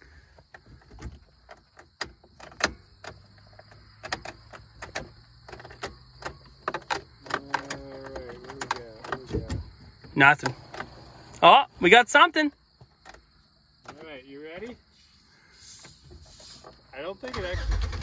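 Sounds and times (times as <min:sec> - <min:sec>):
ignition key clicks: 0:01.8 - 0:09.6
starter motor whine: 0:17.3 - 0:18.0.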